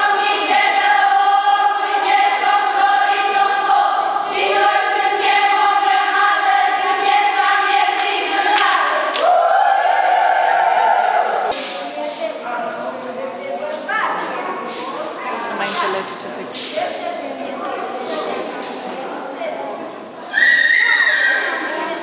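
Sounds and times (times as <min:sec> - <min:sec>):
children's choir singing folk song: 0:00.0 - 0:12.0.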